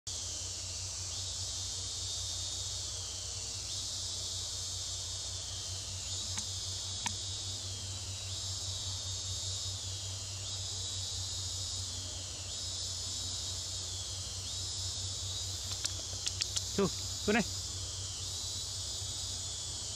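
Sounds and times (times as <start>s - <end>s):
high insect chorus: 0.1s - 19.9s
steady low hum: 0.1s - 19.9s
faint clicks: 6.3s - 7.2s, 15.6s - 16.8s.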